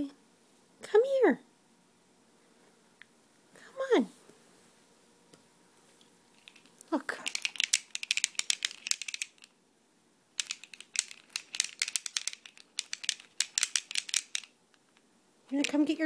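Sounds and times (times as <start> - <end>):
baby toy rattling: 6.4 - 9.5, 10.4 - 14.6, 15.5 - 16.0.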